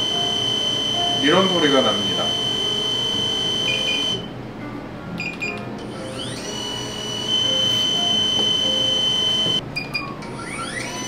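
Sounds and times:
short beeps: 0.0 - 4.3
drone propeller whine: 0.0 - 4.4, 6.0 - 9.6.

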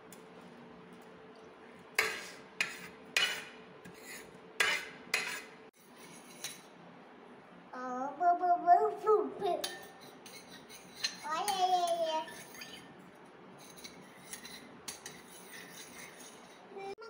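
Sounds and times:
child's voice: 7.7 - 9.8, 11.2 - 12.4, 16.7 - 17.0.

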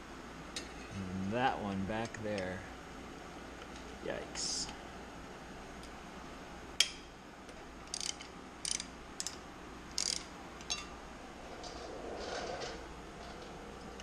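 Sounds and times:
metal hand tools clicking: 7.9 - 10.3.

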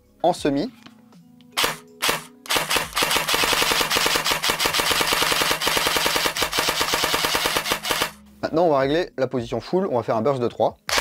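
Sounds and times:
airsoft gun gearbox firing: 1.6 - 8.2.

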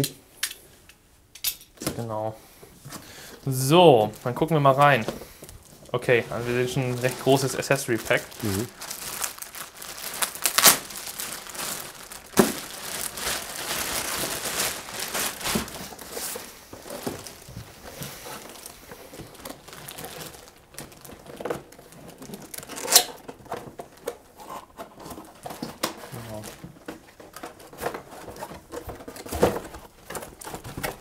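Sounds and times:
cardboard and foam handled: 2.8 - 31.0
plastic bag crinkling: 3.3 - 24.2.

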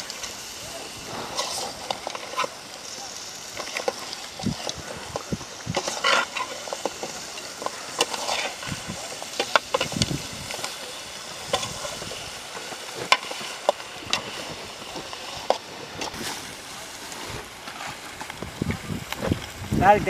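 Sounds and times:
frying sizzle: 0.0 - 20.0
metal skimmer scraping a pot: 3.6 - 10.1.

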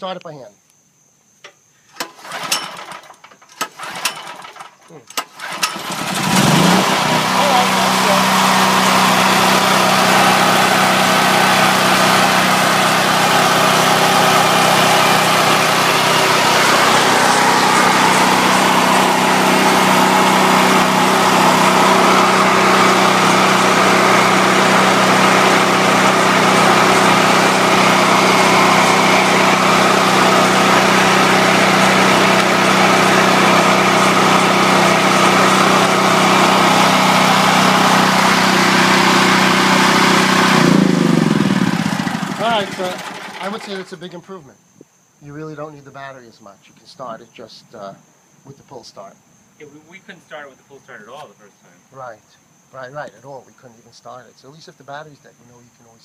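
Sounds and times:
generator engine running: 1.9 - 44.2.

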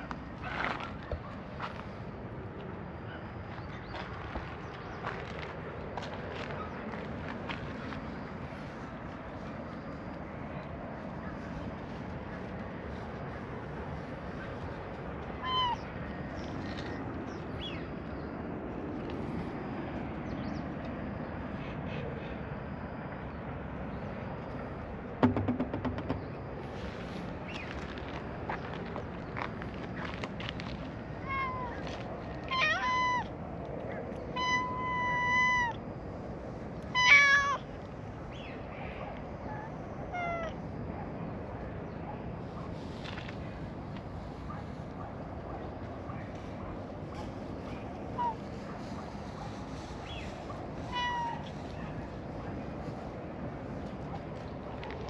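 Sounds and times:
low outdoor background noise: 0.0 - 55.0
cat meowing: 15.4 - 15.8, 31.2 - 31.8, 32.5 - 33.3, 34.4 - 35.8, 37.0 - 37.6, 50.9 - 51.5.

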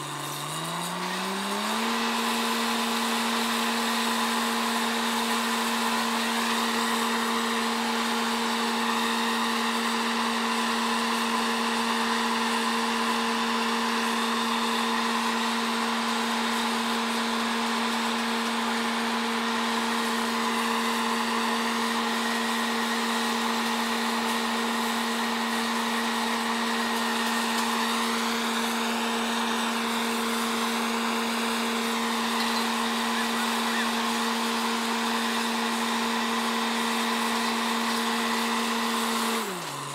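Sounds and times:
air compressor whine: 0.0 - 39.9
drilling rig drone: 13.0 - 38.6.

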